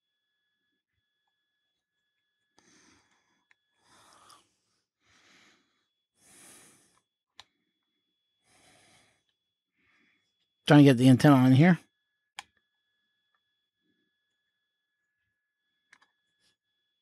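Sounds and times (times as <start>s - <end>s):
person breathing softly: 2.6s - 7.1s, 8.4s - 10.4s.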